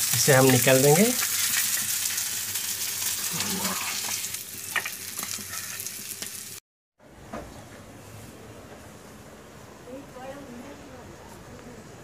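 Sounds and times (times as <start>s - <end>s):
fish frying in hot oil: 0.0s - 6.6s
crackles and pops of oil: 4.7s - 5.4s.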